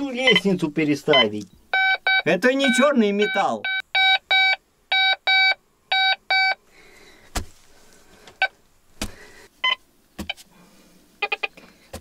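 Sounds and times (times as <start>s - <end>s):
metal detector beeping: 0.2s - 0.5s, 1.1s - 6.6s.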